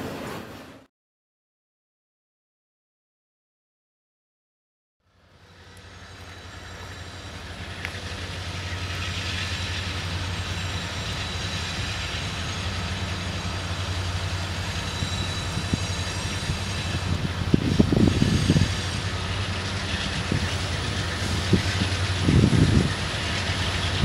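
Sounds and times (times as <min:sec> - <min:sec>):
diesel locomotive engine rumbling: 0:05.0 - 0:24.0.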